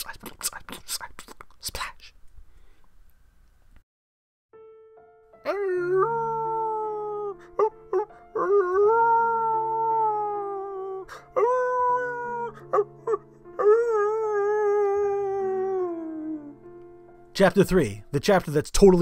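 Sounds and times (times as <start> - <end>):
slow sad background music: 4.6 - 19.0
dog howling: 5.5 - 16.6.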